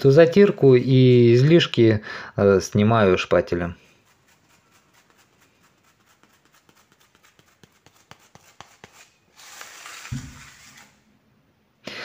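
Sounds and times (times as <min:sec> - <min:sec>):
rubber spatula scraping tile: 0:03.8 - 0:11.1.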